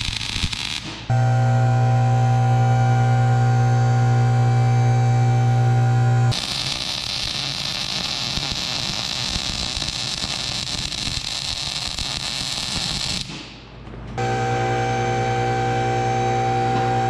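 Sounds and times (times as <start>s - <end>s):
welder arc sizzling: 0.0s - 13.3s, 14.2s - 17.0s
humming drone of held tones: 1.1s - 6.6s, 14.2s - 17.0s.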